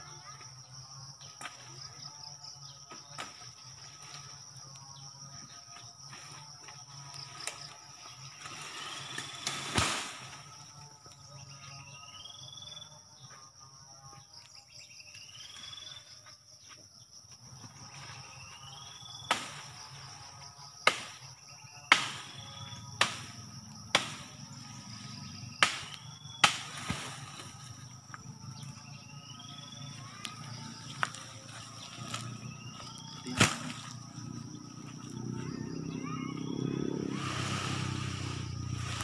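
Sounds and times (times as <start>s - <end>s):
high insect drone: 0.0s - 39.0s
machete chopping branches: 8.4s - 10.4s, 19.3s - 19.8s, 20.8s - 21.3s, 21.9s - 22.4s, 23.0s - 24.4s, 25.6s - 27.6s, 33.3s - 34.0s.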